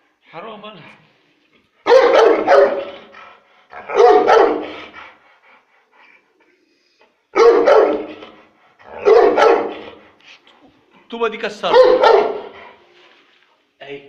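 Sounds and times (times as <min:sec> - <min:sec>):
dog barking deeply: 0:01.8 - 0:05.0, 0:07.4 - 0:10.0, 0:11.6 - 0:12.8.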